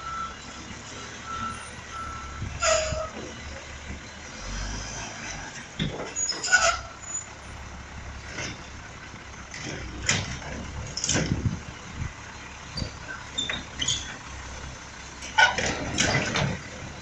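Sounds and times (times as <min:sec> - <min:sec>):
reversing beeper: 0:00.0 - 0:02.6
diesel engine rumbling: 0:00.0 - 0:17.0
air brakes hissing and squealing: 0:01.3 - 0:03.2, 0:06.2 - 0:07.3.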